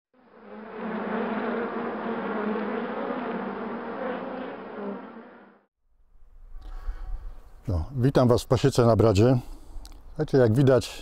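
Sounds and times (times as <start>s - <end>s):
honeybees buzzing: 0.2s - 5.7s.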